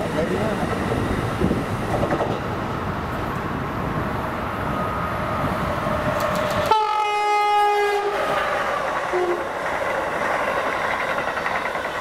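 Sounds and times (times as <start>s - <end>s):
train rumbling on tracks: 0.0s - 12.0s
train horn blast: 6.7s - 8.4s, 9.1s - 9.5s.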